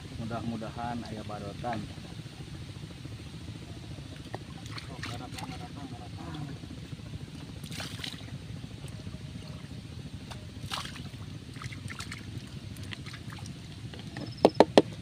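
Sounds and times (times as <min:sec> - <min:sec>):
steady low rumble: 0:00.0 - 0:15.0
water splashing onto pond: 0:04.0 - 0:05.7, 0:07.5 - 0:08.4, 0:09.6 - 0:15.0
sharp knocks: 0:14.2 - 0:15.0.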